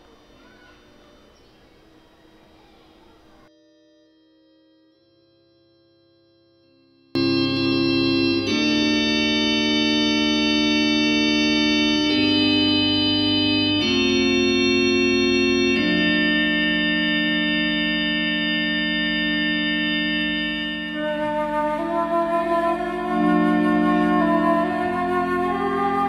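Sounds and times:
higher organ melody: 0.0 - 3.5, 7.2 - 26.0
organ chords: 0.0 - 3.5, 7.2 - 26.0.

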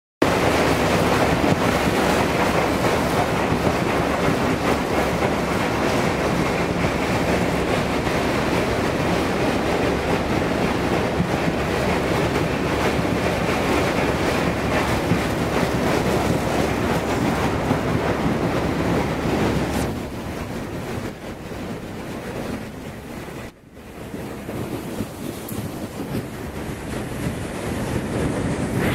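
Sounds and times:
wind on microphone: 0.2 - 28.9.

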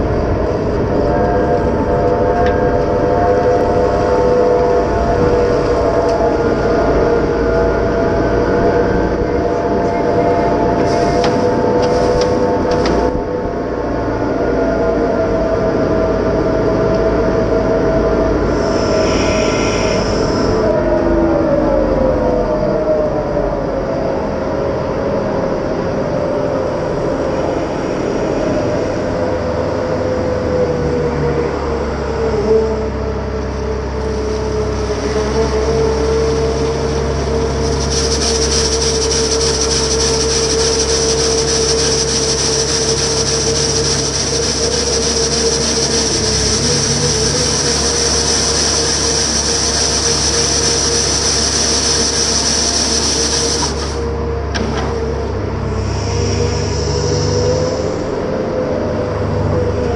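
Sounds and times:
diesel engine and hydraulics running: 0.0 - 59.9
rotating broom sweeping gravel: 34.8 - 54.0.

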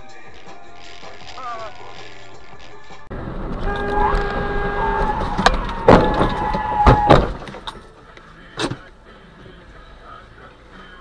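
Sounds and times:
car horn: 3.6 - 7.4.

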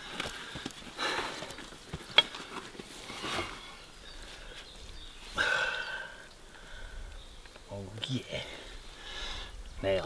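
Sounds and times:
rustle: 0.0 - 10.0.

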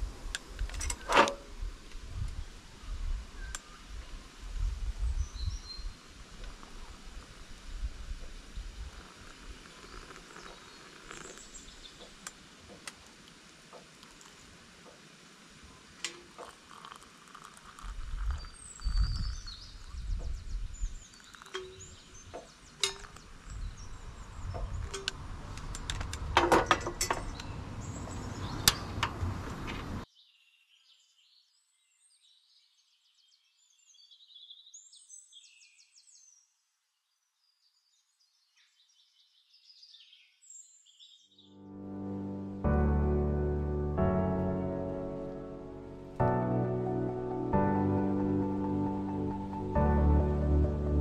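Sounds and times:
birds chirping: 9.4 - 36.4
sharp clicks and clinks: 21.3 - 23.2, 24.6 - 27.4.

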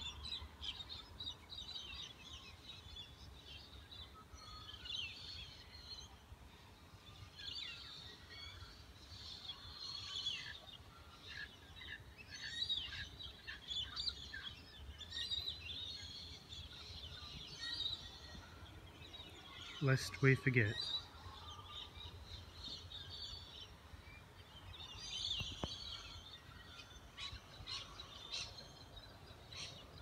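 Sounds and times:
birds chirping and calling: 7.5 - 23.5, 24.1 - 30.0.

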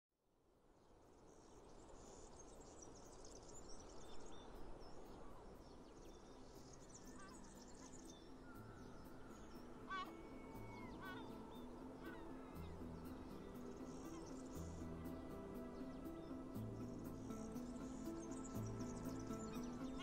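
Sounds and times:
outdoor ambience hiss: 0.3 - 20.0
birds chirping and calling: 7.0 - 20.0
low held music notes: 7.4 - 20.0.

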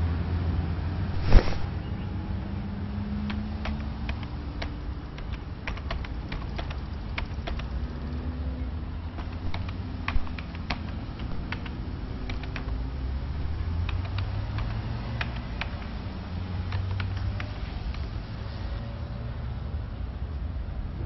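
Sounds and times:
keyboard key clicks: 3.3 - 7.7, 9.1 - 12.8, 13.4 - 16.0, 16.7 - 18.1.

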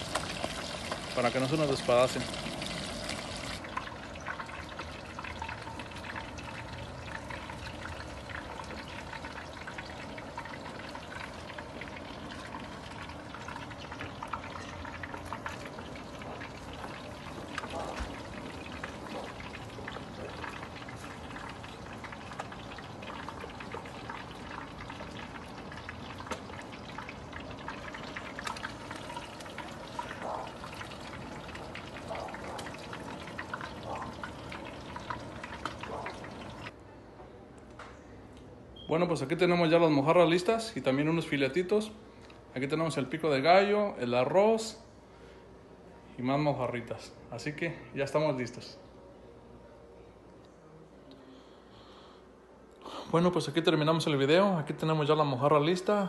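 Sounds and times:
fish deep-frying in oil: 0.0 - 36.7.

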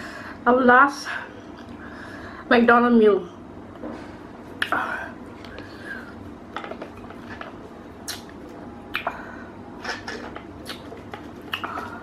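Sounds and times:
wet chewing and lip smacks: 8.0 - 9.1, 10.6 - 11.8.

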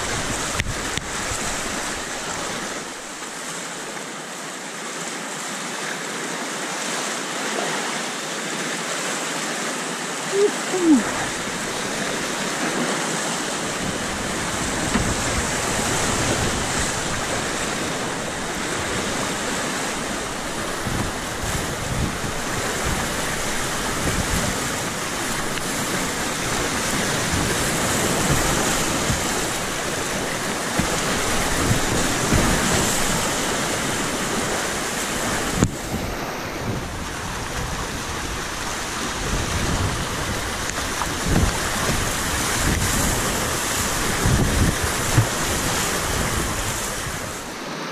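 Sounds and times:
whitewater rapids rushing: 0.0 - 47.9
wind buffeting microphone: 13.4 - 47.6.

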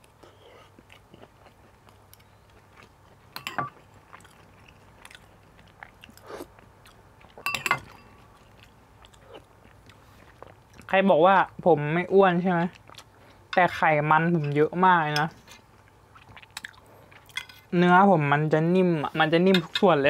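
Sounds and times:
close chewing with mouth clicks: 0.0 - 11.5, 12.5 - 13.6, 15.5 - 17.6
metal spoon on ceramic plate: 7.4 - 8.0.

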